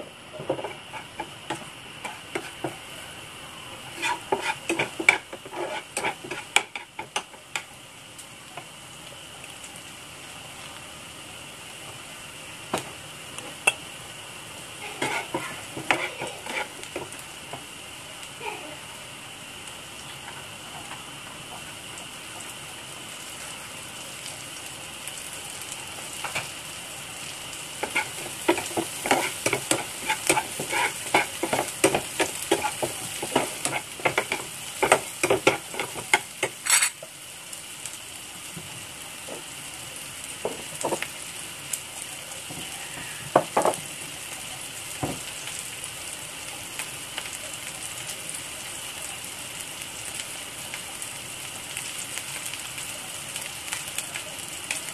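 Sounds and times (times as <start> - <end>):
shallot and garlic sizzling in oil: 0.0 - 54.9
spatula scraping a frying pan: 0.3 - 2.8, 3.8 - 7.3, 14.8 - 17.1, 27.8 - 37.0.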